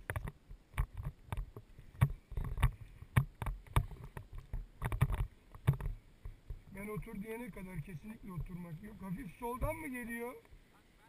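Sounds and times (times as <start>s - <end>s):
gear handling knocks and rustles: 0.0s - 6.7s.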